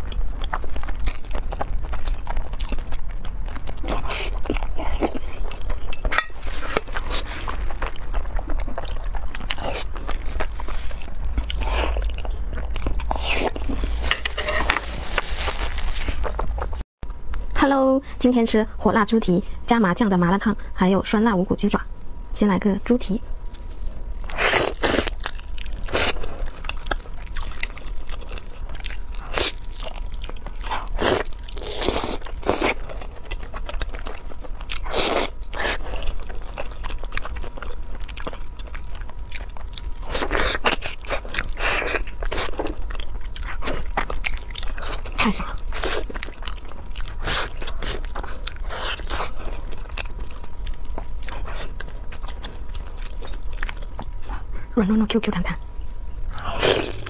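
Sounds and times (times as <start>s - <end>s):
close chewing and wet smacks: 0.0s - 6.0s, 24.9s - 54.7s.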